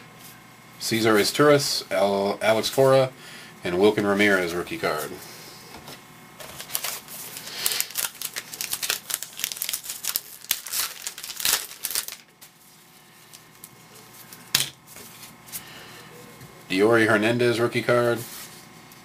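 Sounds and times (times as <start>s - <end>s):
wrapper crinkling and tearing: 6.4s - 12.6s.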